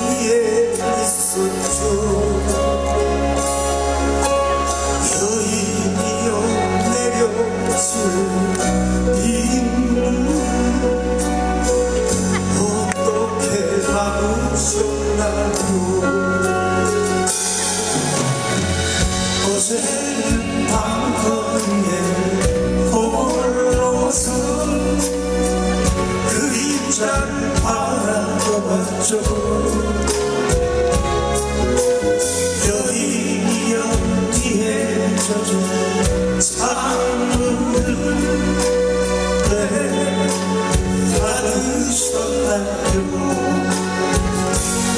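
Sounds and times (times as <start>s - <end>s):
live band playing slow song: 0.0s - 44.9s
men singing: 19.3s - 30.7s, 32.5s - 44.9s.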